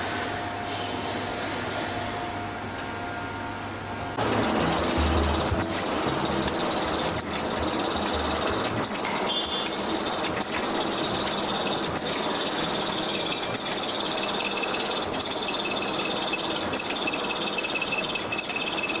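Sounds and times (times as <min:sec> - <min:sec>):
thin high whine: 0:04.2 - 0:10.2
capping machine clatter and hum: 0:04.2 - 0:19.0.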